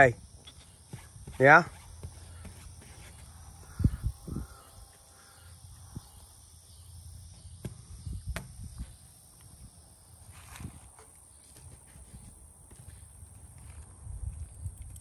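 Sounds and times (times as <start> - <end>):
hoarse crow-like bird calls: 2.0 - 6.4.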